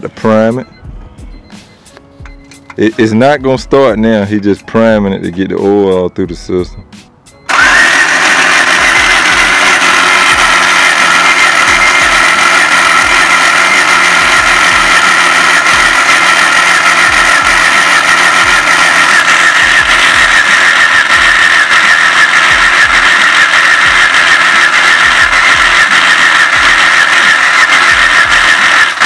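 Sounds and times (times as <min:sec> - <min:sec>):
starter motor cranking engine: 0:07.5 - 0:29.0.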